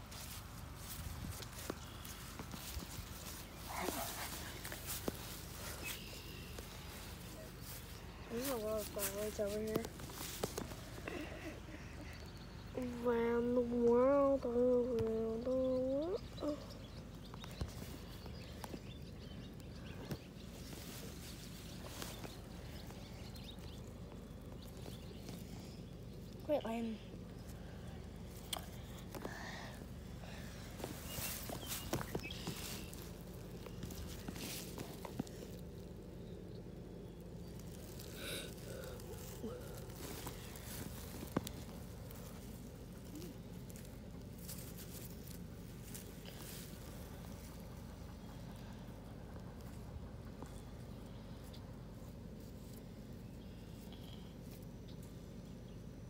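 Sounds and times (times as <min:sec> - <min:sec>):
soft clicks and rustles: 0:00.0 - 0:13.0, 0:30.5 - 0:55.2
low background noise: 0:00.0 - 0:56.0
steady low hum: 0:00.0 - 0:56.0
faint bird calls: 0:01.5 - 0:08.6.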